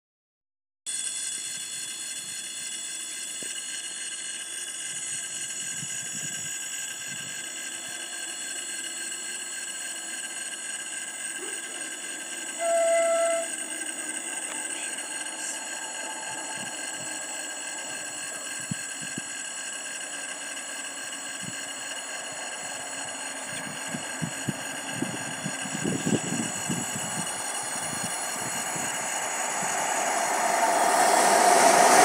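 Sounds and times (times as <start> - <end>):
electric locomotive horn blast: 12.5 - 13.7.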